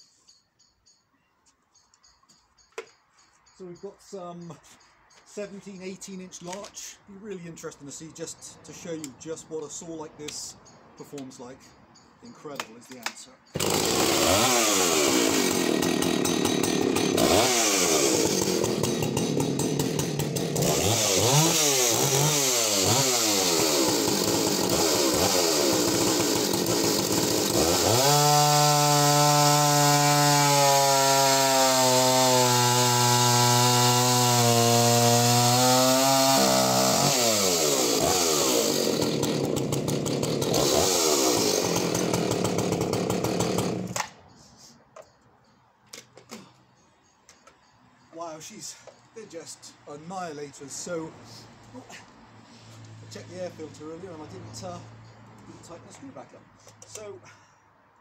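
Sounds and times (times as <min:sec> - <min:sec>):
chainsaw revving and cutting log: 0:13.5 - 0:44.1.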